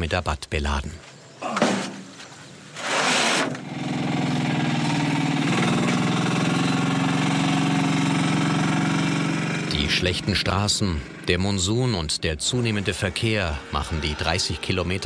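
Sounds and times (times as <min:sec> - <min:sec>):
small vehicle engine running: 0:03.0 - 0:15.0.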